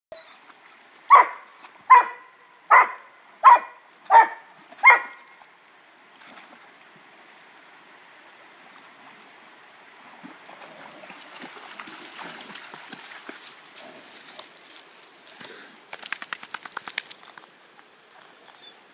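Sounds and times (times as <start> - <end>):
creek running: 0.2 - 18.9
dog barking: 1.1 - 5.2
dog splashing in water: 10.2 - 14.6, 15.9 - 17.6.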